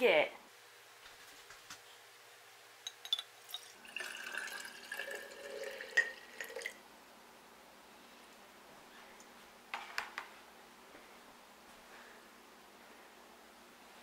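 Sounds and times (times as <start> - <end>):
liquid trickling into glass: 2.9 - 6.8.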